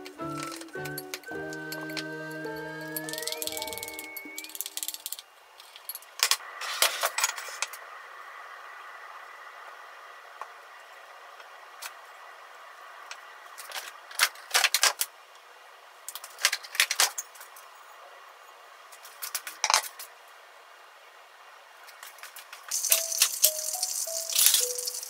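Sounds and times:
kitchen items clinking and rattling: 0.0s - 5.2s, 22.7s - 25.0s.

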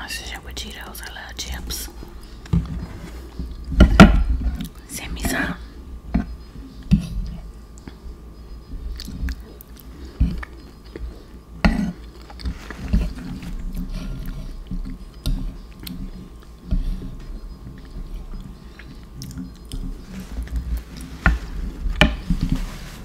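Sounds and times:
person chewing: 8.8s - 16.7s, 17.4s - 21.2s.

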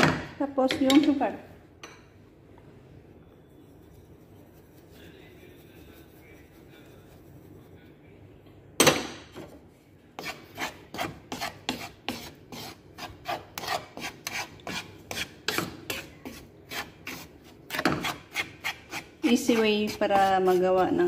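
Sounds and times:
wooden spatula scraping steel pan: 10.2s - 21.0s.

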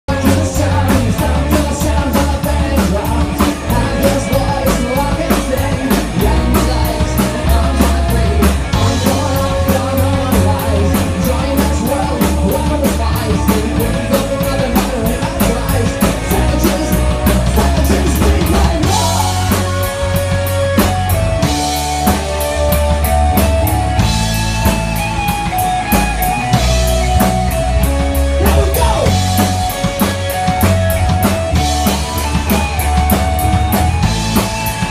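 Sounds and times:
man singing: 0.1s - 20.3s, 28.4s - 29.7s
live rock band playing: 0.1s - 34.9s.

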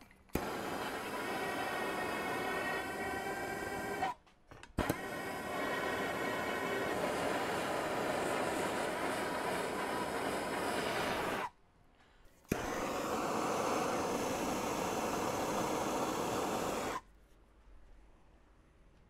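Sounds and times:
heat gun running: 0.3s - 4.2s, 4.8s - 11.5s, 12.5s - 17.0s.

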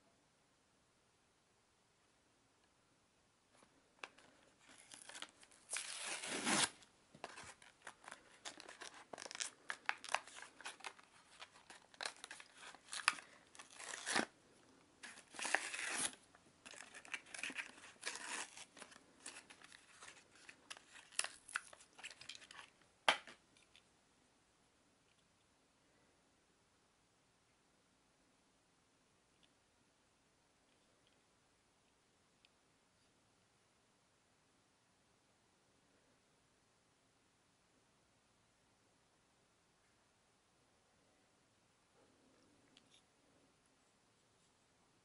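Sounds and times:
packaging tearing and crinkling: 4.7s - 14.3s, 15.0s - 22.7s.

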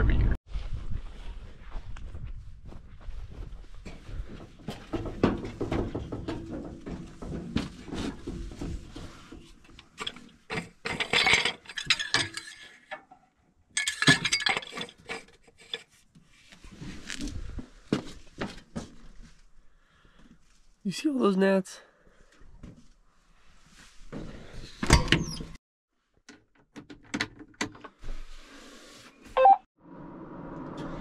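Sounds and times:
footsteps on metal steps: 2.7s - 11.4s
metal knocks and clanks: 3.9s - 13.2s.

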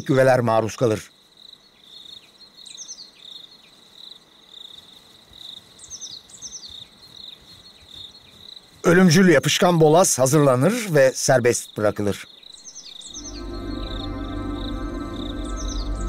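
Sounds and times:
crickets trilling: 0.0s - 16.0s
short high chirps: 13.1s - 16.0s.

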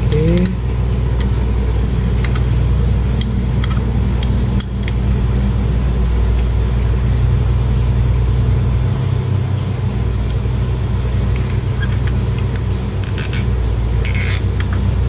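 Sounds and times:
low droning motor hum: 0.0s - 15.0s.

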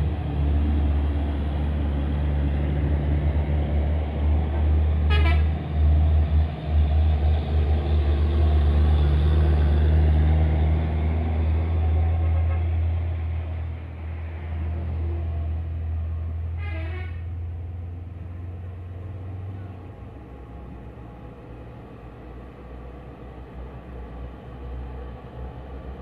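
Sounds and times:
diesel trucks rumbling past: 0.0s - 26.0s
truck horn toot: 5.1s - 5.6s, 12.2s - 12.7s, 16.6s - 17.3s.

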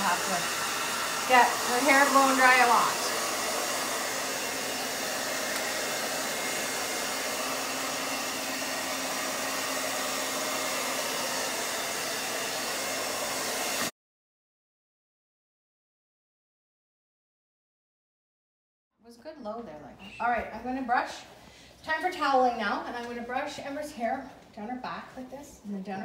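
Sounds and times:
blow dryer running: 0.0s - 13.9s.

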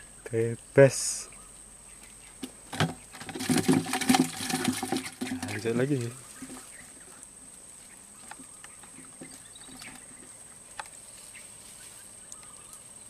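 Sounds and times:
soft hiss: 10.3s - 13.0s.

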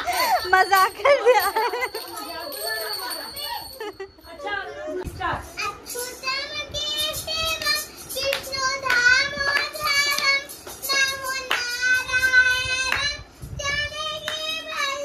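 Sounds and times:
child singing high voice: 5.6s - 15.0s
hand claps: 7.5s - 13.2s, 14.2s - 14.5s.

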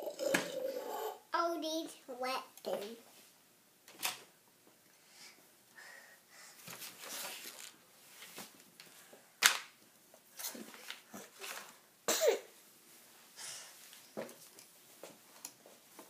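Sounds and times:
rustling handling noise: 6.6s - 11.9s.

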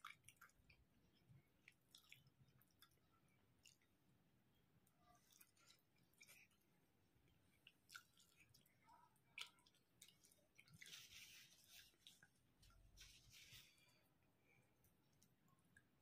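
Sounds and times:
close chewing with mouth clicks: 0.0s - 4.0s, 4.8s - 13.0s.

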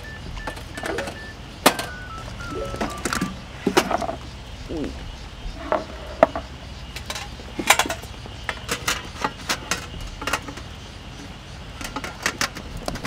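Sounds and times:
metal panels clinking: 5.7s - 10.8s.

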